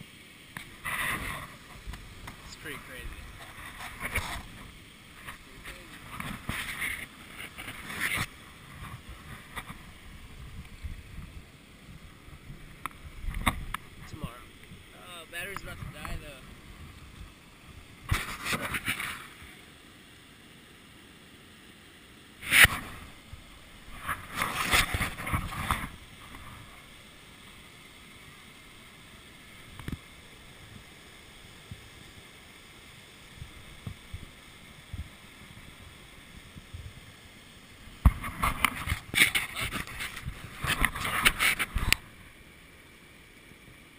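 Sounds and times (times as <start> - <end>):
faint steady hiss: 0.0 - 43.9
camera handling rubbing and scraping: 3.3 - 9.8, 18.0 - 19.2, 22.4 - 23.0, 23.9 - 26.5, 38.1 - 42.0.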